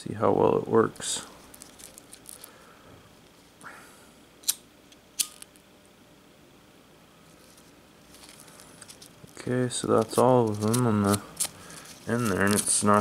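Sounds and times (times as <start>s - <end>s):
lighter handling: 4.4s - 5.6s
velcro strap: 9.9s - 13.0s.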